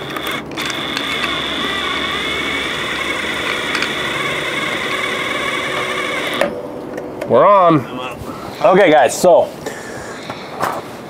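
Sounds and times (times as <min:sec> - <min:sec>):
cordless drill whining: 0:00.0 - 0:06.5.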